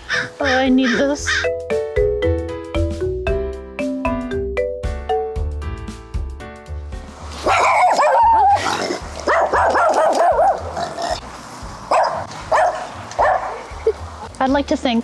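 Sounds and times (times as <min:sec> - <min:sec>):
light plucked music: 0:00.4 - 0:09.3
dog barking: 0:07.4 - 0:08.5, 0:09.3 - 0:10.7, 0:11.9 - 0:13.6.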